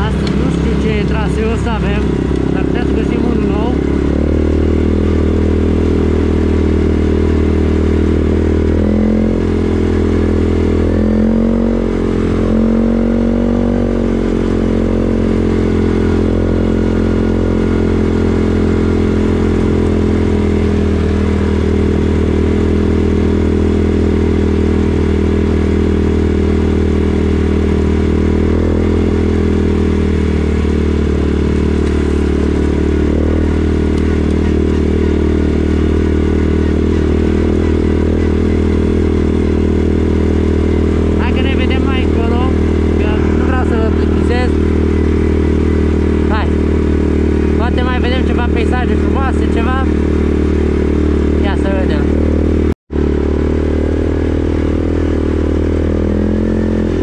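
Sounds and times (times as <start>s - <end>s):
atv engine revving: 0.0s - 57.0s.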